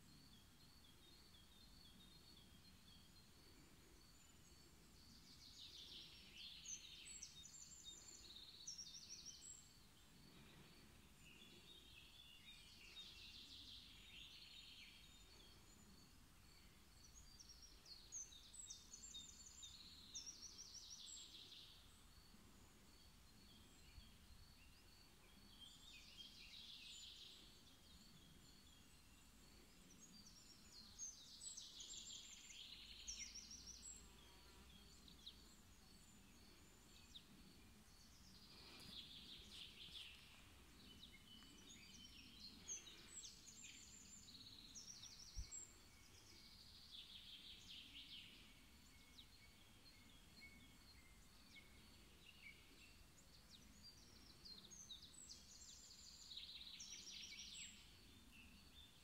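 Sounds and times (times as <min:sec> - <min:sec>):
bird chirps: 0:00.1 - 0:59.0.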